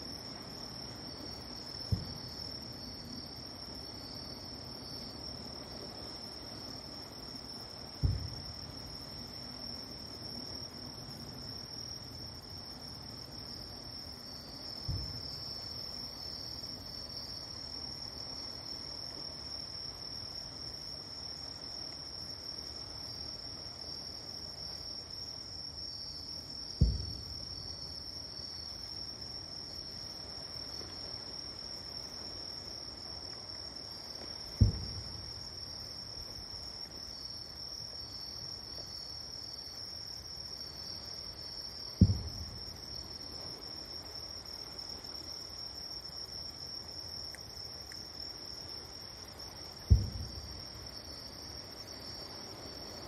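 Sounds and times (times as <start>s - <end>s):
night insects chirring: 0.0s - 53.0s
distant fireworks booms: 1.9s - 2.4s, 8.0s - 8.8s, 14.8s - 15.5s, 26.8s - 27.7s, 34.5s - 35.4s, 42.0s - 43.0s, 49.8s - 50.9s.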